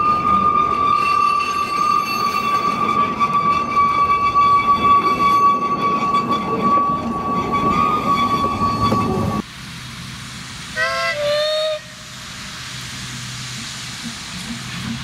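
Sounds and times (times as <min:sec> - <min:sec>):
steam locomotive whistle: 0:00.0 - 0:09.4, 0:10.8 - 0:12.2
train rumbling: 0:00.0 - 0:15.0.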